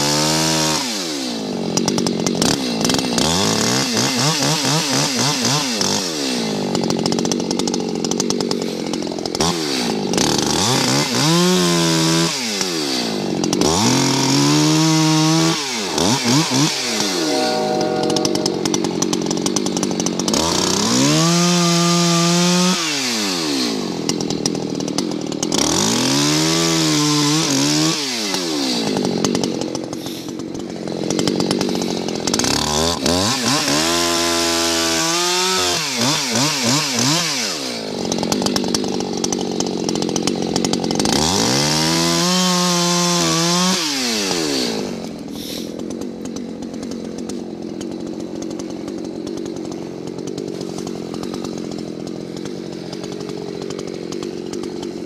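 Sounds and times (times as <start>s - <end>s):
chainsaw cutting logs: 0.0s - 55.0s
chainsaw revving and idling: 0.0s - 55.0s.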